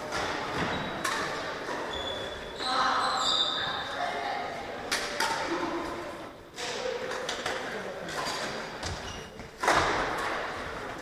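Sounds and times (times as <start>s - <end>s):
shoe squeaks: 0.6s - 1.1s, 1.7s - 4.0s, 8.9s - 9.5s.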